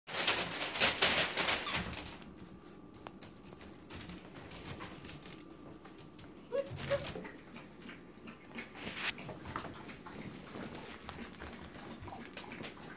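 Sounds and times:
newspaper rustling and crinkling: 0:00.1 - 0:05.9
puppy paws scratching and tapping: 0:00.1 - 0:12.9
high puppy cries: 0:06.4 - 0:07.4.

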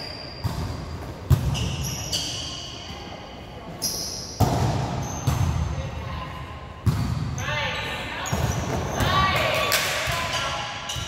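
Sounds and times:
shoe squeaks on court floor: 0:00.0 - 0:03.1, 0:03.8 - 0:05.5.

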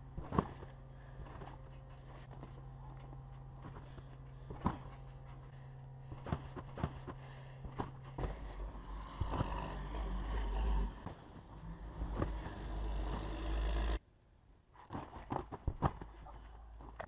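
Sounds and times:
feet landing on trampoline: 0:00.0 - 0:08.6, 0:14.9 - 0:17.0.

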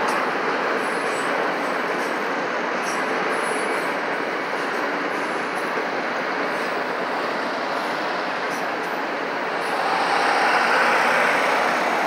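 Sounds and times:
train wheels on rail: 0:00.0 - 0:12.0
truck driving past: 0:09.5 - 0:12.0.

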